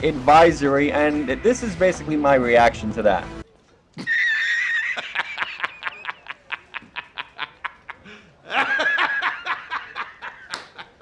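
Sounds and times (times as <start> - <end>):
man laughing hysterically: 4.0 - 11.0.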